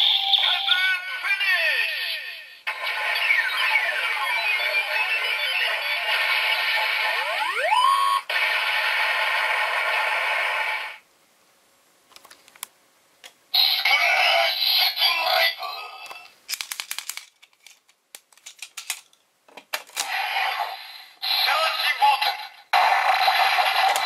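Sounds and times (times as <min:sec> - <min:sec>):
synthesized voice: 0:00.0 - 0:06.1, 0:21.2 - 0:22.5
plastic clicks: 0:12.1 - 0:13.4, 0:16.0 - 0:20.1.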